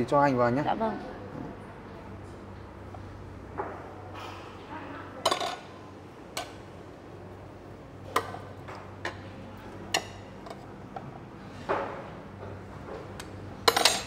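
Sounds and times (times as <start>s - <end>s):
spoons clinking against bowls: 13.6s - 14.0s.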